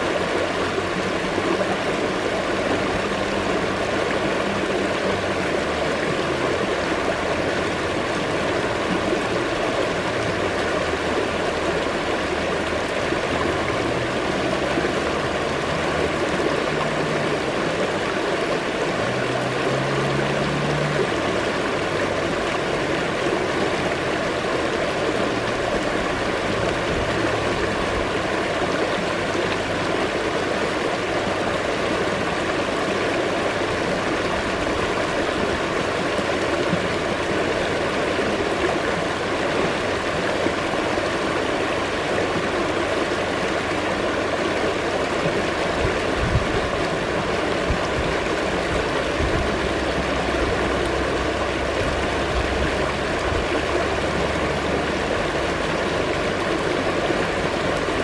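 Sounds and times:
river rapids rushing over rocks: 0:00.0 - 0:58.0.

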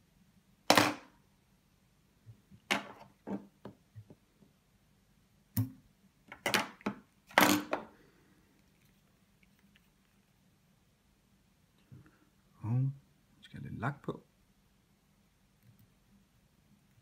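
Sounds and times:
scraping and rustling of thread: 0:07.8 - 0:10.5.

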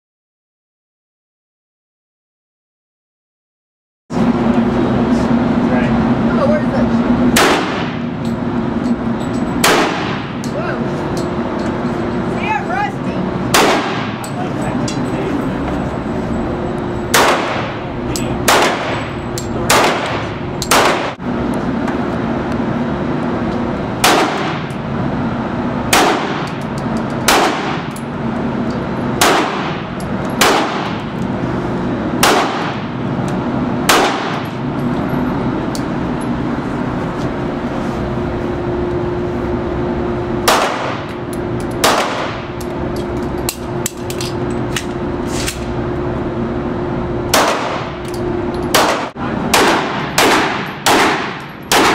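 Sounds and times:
steady hum: 0:04.1 - 0:51.9
handgun shots echoing: 0:07.4 - 0:08.0, 0:09.6 - 0:10.4, 0:13.5 - 0:14.3, 0:17.1 - 0:17.8, 0:18.4 - 0:21.2, 0:24.0 - 0:24.7, 0:25.9 - 0:28.0, 0:29.2 - 0:31.1, 0:32.2 - 0:32.9, 0:33.9 - 0:34.6, 0:40.4 - 0:41.2, 0:41.8 - 0:42.4, 0:47.3 - 0:48.0, 0:48.7 - 0:51.9.

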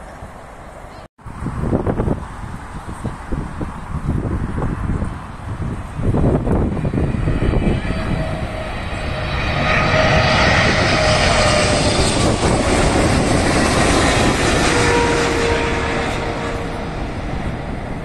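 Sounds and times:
jet airliner passing overhead: 0:00.0 - 0:18.0
whining jet engine tones: 0:04.9 - 0:18.0.

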